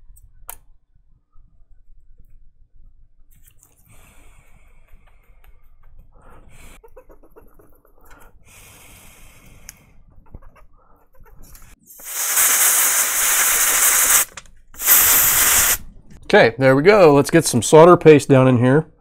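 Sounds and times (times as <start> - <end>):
loud hiss of rushing air: 12.0 - 15.8.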